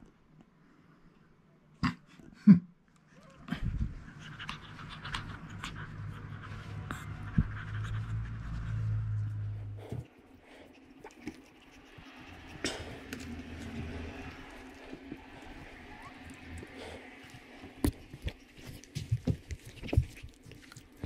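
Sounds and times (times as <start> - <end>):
low steady hum: 0.0 - 21.0
dog panting: 3.9 - 21.0
plush toys rustling and clicking: 17.6 - 21.0.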